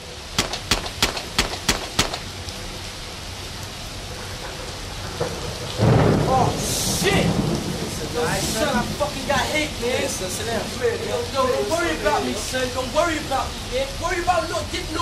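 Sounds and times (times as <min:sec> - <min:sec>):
steady rain: 0:00.0 - 0:15.0
sharp clicks: 0:00.4 - 0:02.3.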